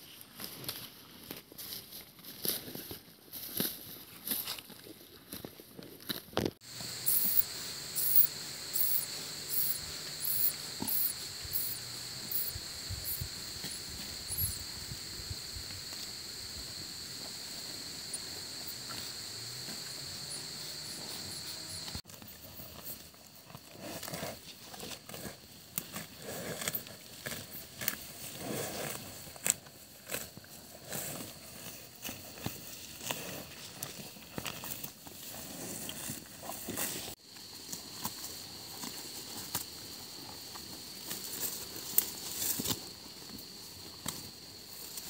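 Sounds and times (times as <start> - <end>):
buffalo chewing grass: 0.4 - 14.6, 16.6 - 45.0
high-pitched insect drone: 6.6 - 22.0
repeating insect chirp: 6.6 - 22.0.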